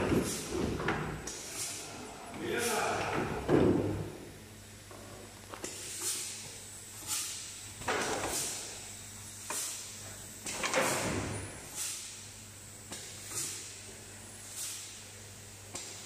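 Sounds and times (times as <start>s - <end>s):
low electrical hum: 0.0s - 16.0s
pneumatic air hisses: 0.2s - 0.6s, 5.6s - 6.4s, 8.1s - 8.8s, 9.4s - 9.9s, 10.7s - 12.2s, 12.9s - 13.7s, 14.4s - 15.0s.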